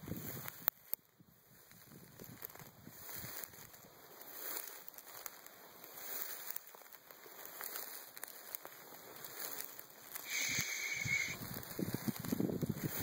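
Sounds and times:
dry grass rustling and crackling: 0:00.0 - 0:13.0.

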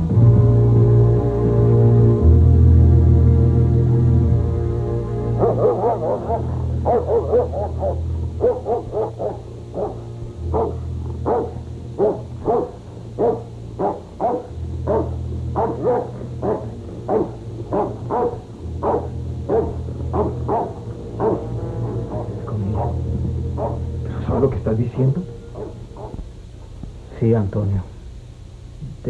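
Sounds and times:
low music drone: 0:00.0 - 0:29.0
dog barking: 0:05.4 - 0:24.0, 0:25.5 - 0:26.2.

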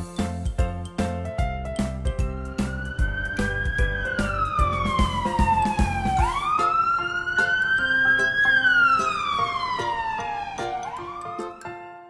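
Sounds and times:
light background music: 0:00.0 - 0:12.0
wailing emergency siren: 0:02.3 - 0:11.6.

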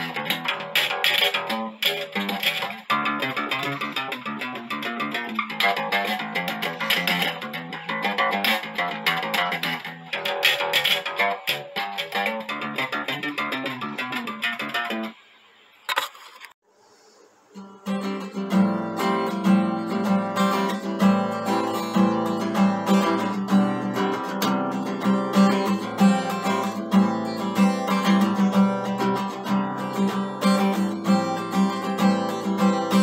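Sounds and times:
acoustic guitar strumming: 0:00.0 - 0:15.2, 0:17.6 - 0:33.0.

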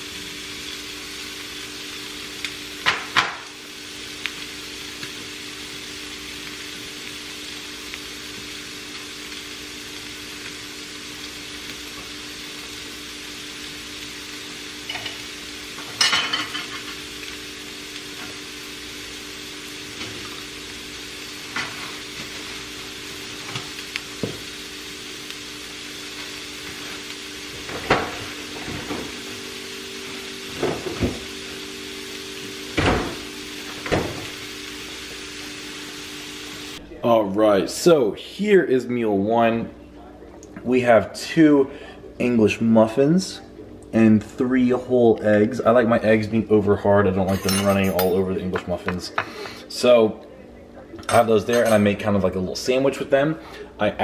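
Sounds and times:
eggs sizzling in a skillet: 0:00.0 - 0:37.8
dishes and utensils clinking: 0:15.9 - 0:17.0, 0:47.3 - 0:49.5, 0:51.0 - 0:51.9.

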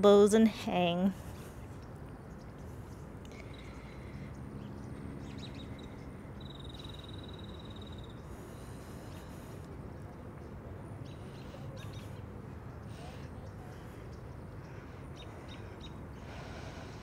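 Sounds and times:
steady low outdoor noise: 0:00.0 - 0:17.0
high bird chirps: 0:05.2 - 0:08.3.

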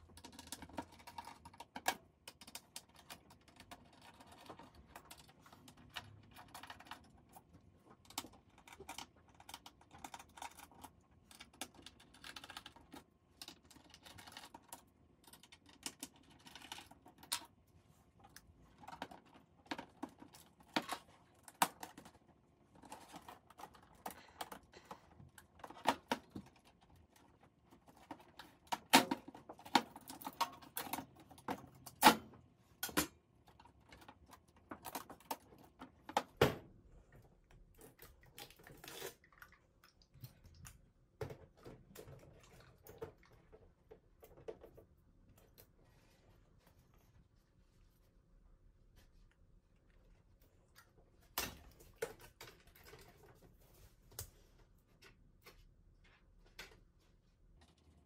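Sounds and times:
plastic parts pried apart: 0:27.9 - 0:36.7.

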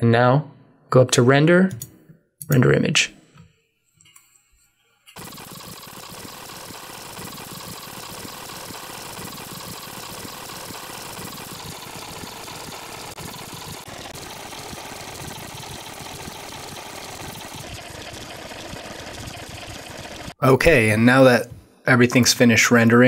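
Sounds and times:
fast-forward mechanical whirring: 0:05.2 - 0:20.4.

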